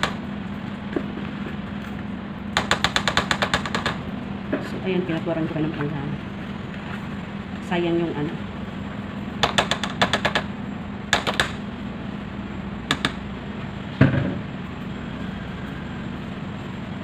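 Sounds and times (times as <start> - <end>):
steady low hum: 0.0 - 17.0
thump: 14.0 - 14.4.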